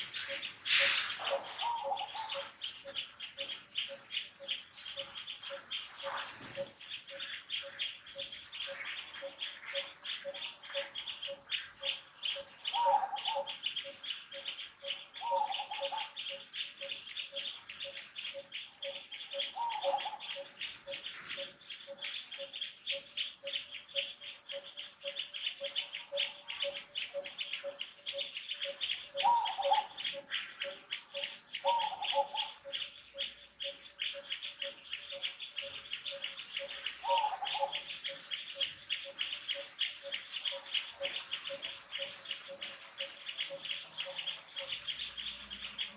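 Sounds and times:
insect chorus: 0.0 - 45.9
short falling bird calls: 0.2 - 2.5
bird repeating low note: 24.6 - 42.6.

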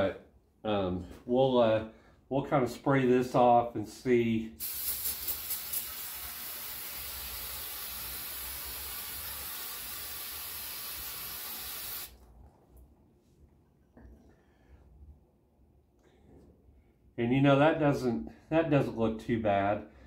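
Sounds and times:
aerosol spray can hissing: 4.6 - 12.2.

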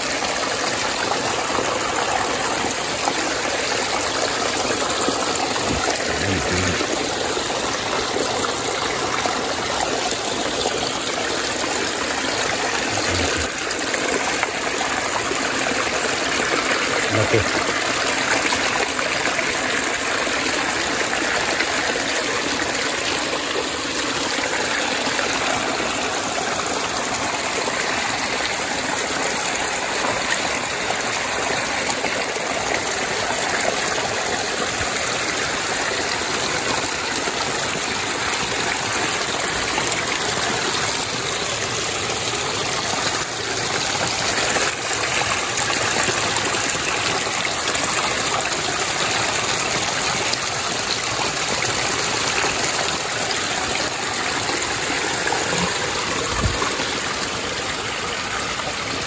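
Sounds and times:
creek water rushing: 0.0 - 59.0.

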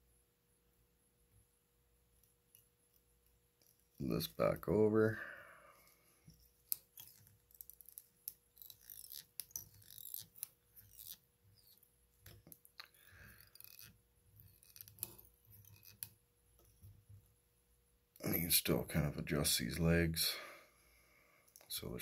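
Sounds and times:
faint clicks and scratches: 2.1 - 4.4, 5.7 - 17.3
thread being wrapped and pulled: 2.1 - 4.4, 5.2 - 17.3.

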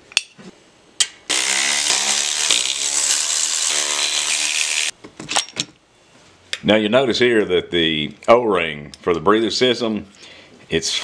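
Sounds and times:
cordless electric ratchet whine: 1.3 - 4.9.

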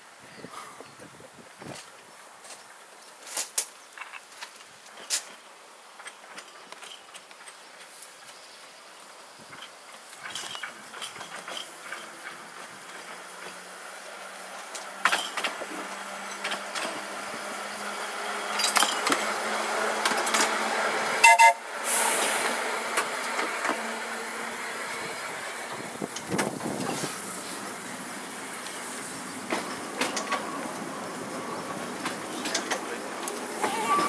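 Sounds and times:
electric tram running: 5.3 - 34.0
tram warning toot: 17.1 - 25.4, 29.4 - 34.0
brief hiss: 21.3 - 23.2.

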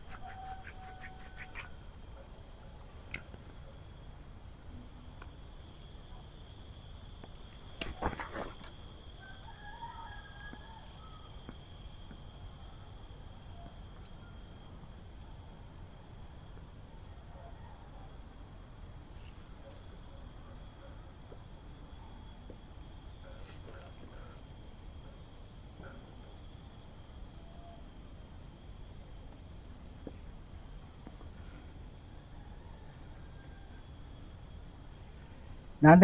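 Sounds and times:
insects buzzing: 0.0 - 36.0.

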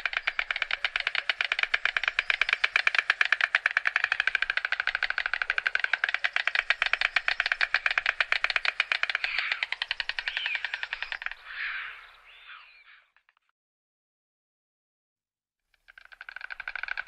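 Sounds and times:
storks clattering bills: 0.0 - 11.6.

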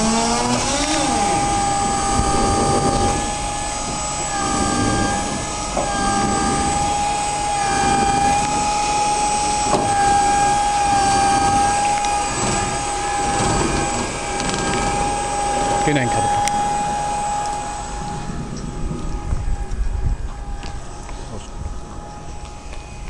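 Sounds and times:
crane high whine: 0.0 - 23.0
engine rumble: 0.0 - 23.0.

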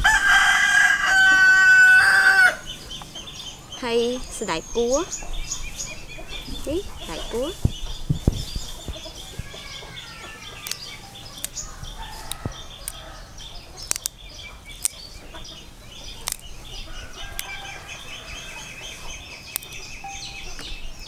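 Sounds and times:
birds chirping: 0.0 - 21.0
chickens clucking: 0.0 - 21.0
beans snapping: 10.6 - 13.1, 13.8 - 14.2, 14.8 - 15.1, 16.1 - 16.5, 17.2 - 17.6, 19.5 - 19.8.

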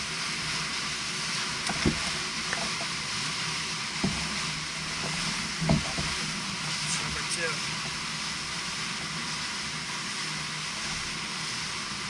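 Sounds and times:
choppy water lapping kayak: 0.0 - 12.0
wind hiss: 0.0 - 12.0
dull knocks: 1.7 - 2.8, 4.0 - 4.4, 5.0 - 6.3.

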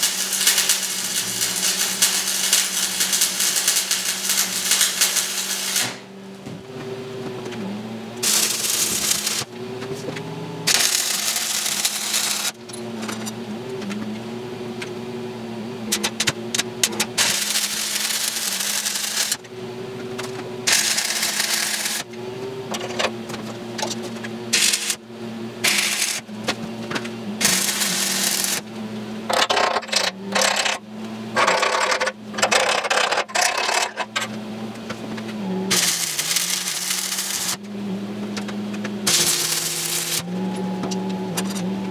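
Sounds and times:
welding arc crackling and sizzling: 0.0 - 6.4, 8.2 - 9.6, 10.6 - 14.1, 15.9 - 23.0, 23.7 - 30.8, 35.2 - 37.7, 38.4 - 40.4
steady hum: 0.0 - 41.9
metallic clicks and clanks: 29.3 - 30.8, 31.4 - 34.3.

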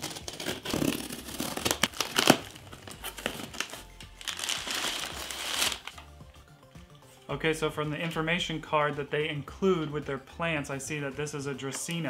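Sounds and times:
packing material rustling: 0.0 - 6.1.

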